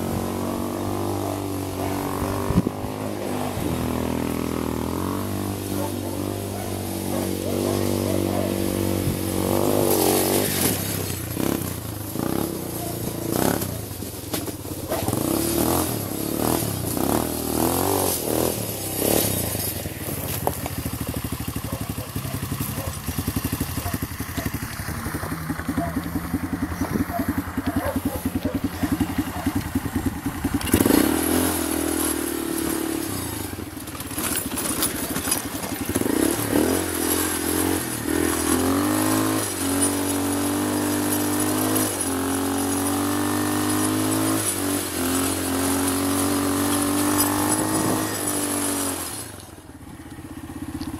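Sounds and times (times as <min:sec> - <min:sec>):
quad bike engine revving: 0:00.0 - 0:50.9.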